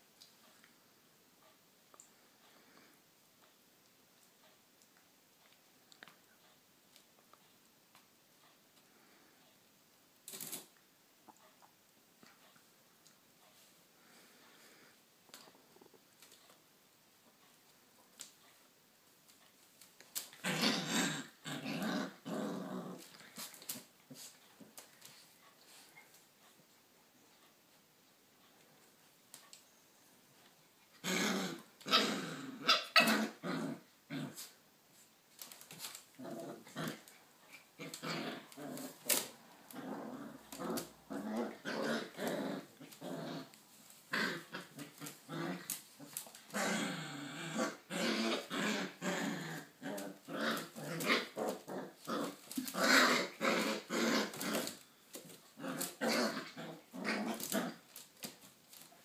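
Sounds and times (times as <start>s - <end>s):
puppies growling: 20.2s - 25.8s, 30.9s - 34.6s, 35.4s - 58.9s.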